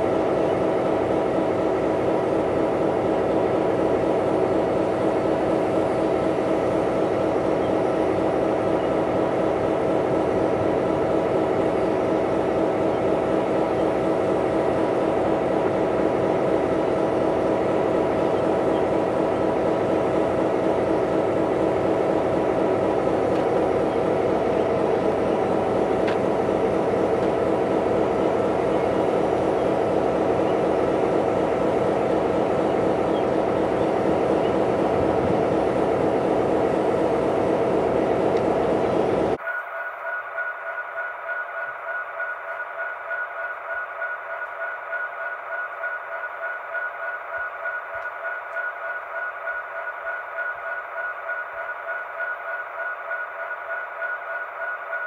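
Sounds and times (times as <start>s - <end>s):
diesel locomotive idling: 0.0s - 55.0s.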